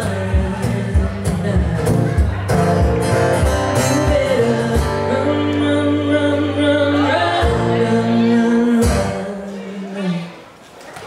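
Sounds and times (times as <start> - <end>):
strummed acoustic guitar: 0.0 - 10.2
woman singing: 3.7 - 10.4.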